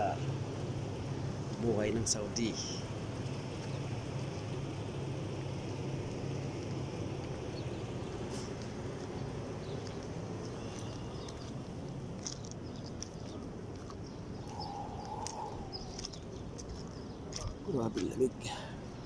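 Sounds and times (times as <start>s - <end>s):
steady low rumble: 0.0s - 19.0s
faint bird chirps: 9.7s - 11.5s, 14.0s - 17.7s.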